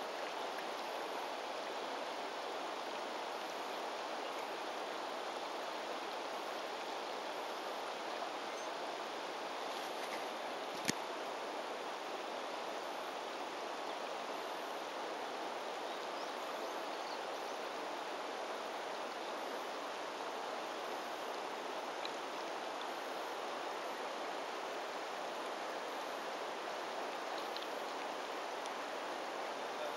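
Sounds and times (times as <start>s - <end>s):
river flowing over stones: 0.0s - 29.9s.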